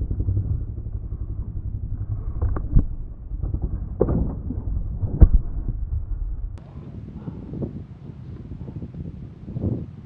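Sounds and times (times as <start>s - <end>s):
bike knocking against rocks: 0.0s - 6.6s
motorcycle engine at low revs: 0.0s - 6.6s.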